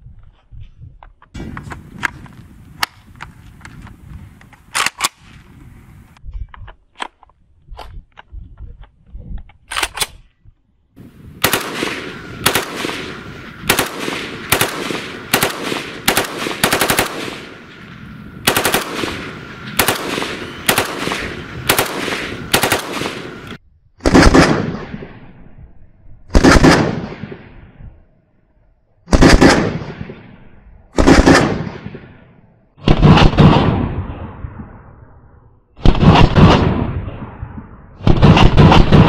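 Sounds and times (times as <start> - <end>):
rifle firing: 11.4 - 25.0, 26.3 - 27.3, 29.1 - 30.0, 31.0 - 32.1, 35.8 - 36.9, 38.0 - 39.0.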